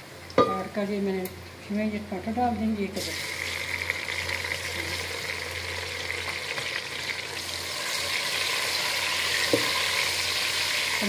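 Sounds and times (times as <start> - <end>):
vegetables sizzling in hot fat: 3.0 - 11.0.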